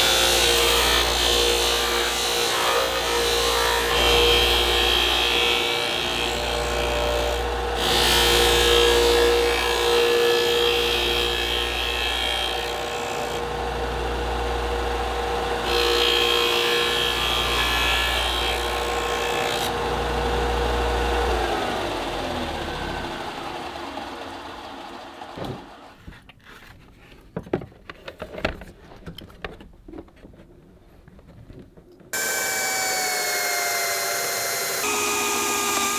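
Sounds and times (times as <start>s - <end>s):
disc sander grinding plastic: 32.2s - 35.9s.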